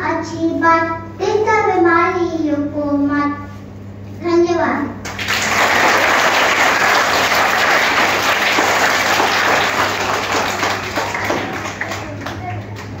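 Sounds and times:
children applauding: 0:05.1 - 0:13.0.

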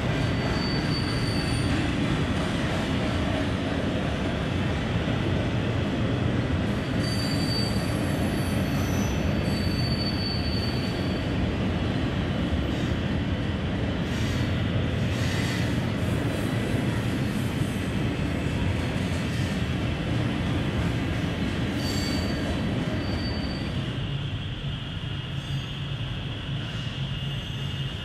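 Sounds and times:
thin high squeal: 0:07.0 - 0:11.2, 0:21.8 - 0:22.4, 0:23.0 - 0:23.8.

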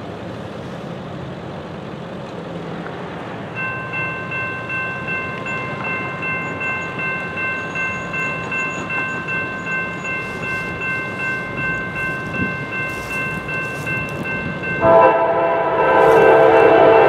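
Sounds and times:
road traffic hiss: 0:00.0 - 0:17.0
crossing warning bell ringing: 0:03.5 - 0:17.0.

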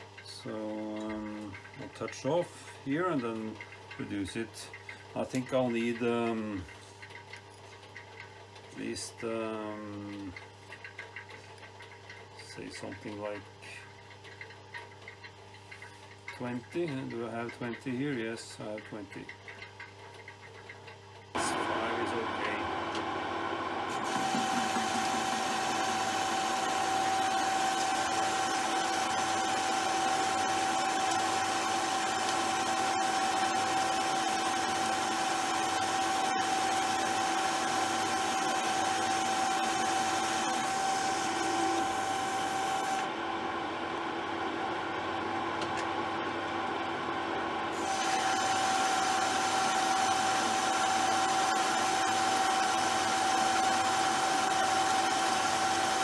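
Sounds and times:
lathe whining: 0:21.4 - 0:43.2, 0:47.7 - 0:56.0.

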